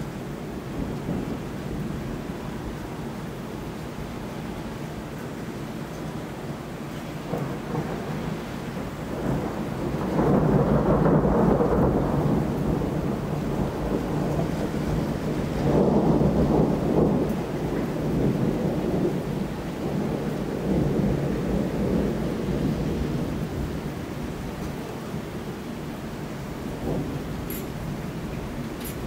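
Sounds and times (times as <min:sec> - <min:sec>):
steady rain: 0:00.0 - 0:29.0
thunder rumbling: 0:00.6 - 0:02.7, 0:07.2 - 0:25.3, 0:26.5 - 0:29.0.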